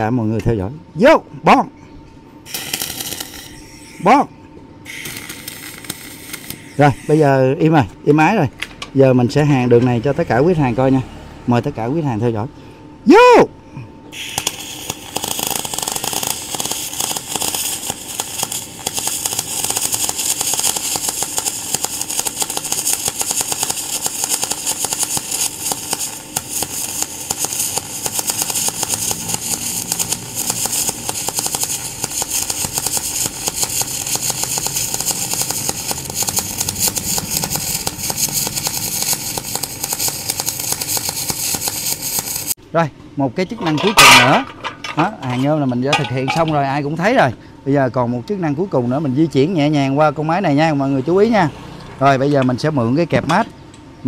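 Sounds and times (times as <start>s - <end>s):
welding arc crackling and hissing: 2.4s - 8.3s, 14.1s - 42.6s.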